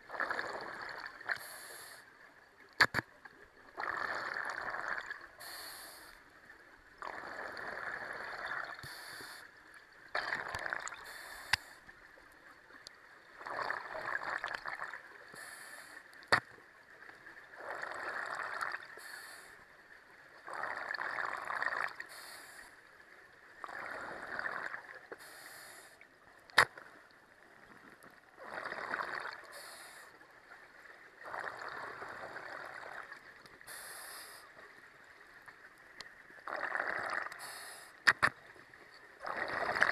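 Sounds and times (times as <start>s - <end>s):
diver breathing through regulator: 5.4s - 6.2s, 8.8s - 9.5s, 15.4s - 16.0s, 22.1s - 22.7s, 33.7s - 34.5s, 37.2s - 38.1s.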